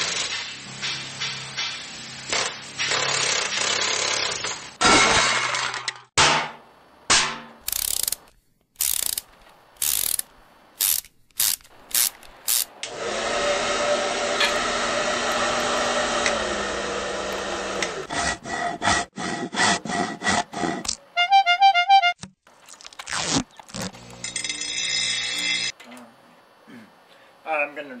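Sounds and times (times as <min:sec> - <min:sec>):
mechanical noise with low hum: 0:06.6 - 0:18.1
ratchet strokes: 0:07.6 - 0:12.7.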